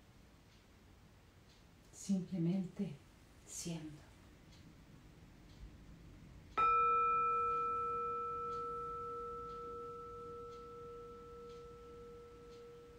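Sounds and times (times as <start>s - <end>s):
mallet striking singing bowl: 6.6s - 12.9s
singing bowl ringing: 6.6s - 12.9s.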